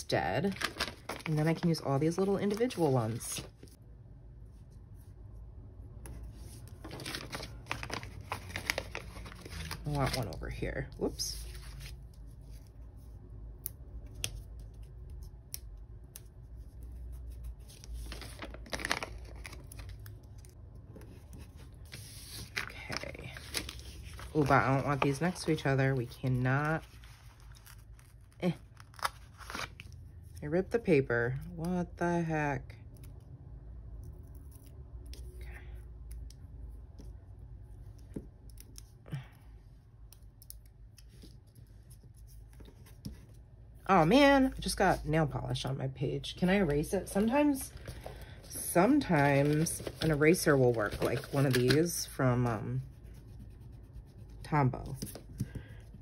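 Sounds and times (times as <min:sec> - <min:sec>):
paper rustling: 0:00.4 - 0:03.8, 0:06.1 - 0:12.7, 0:16.6 - 0:29.9, 0:46.6 - 0:53.6.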